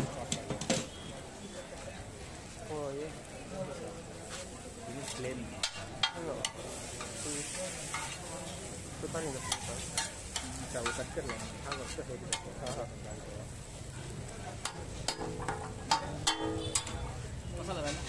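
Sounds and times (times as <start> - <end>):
meat sizzling: 2.4 - 17.1
metal spatula scraping griddle: 4.2 - 13.1, 14.6 - 17.2
metal clanks: 14.6 - 17.2.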